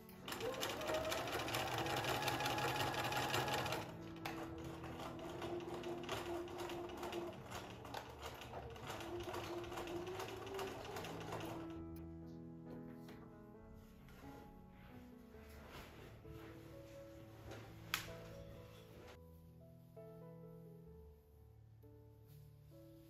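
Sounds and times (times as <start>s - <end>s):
electric sewing machine stitching: 0.0s - 11.8s.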